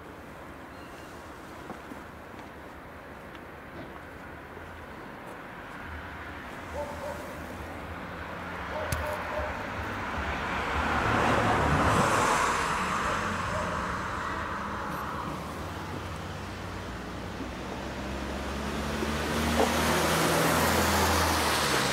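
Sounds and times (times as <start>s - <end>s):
car driving past: 10.0s - 21.9s.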